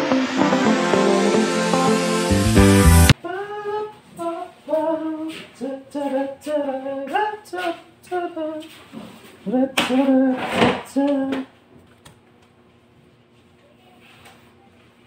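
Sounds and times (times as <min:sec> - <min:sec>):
electronic music rising sweep: 0:00.0 - 0:03.2
high voice singing unaccompanied: 0:03.2 - 0:08.7.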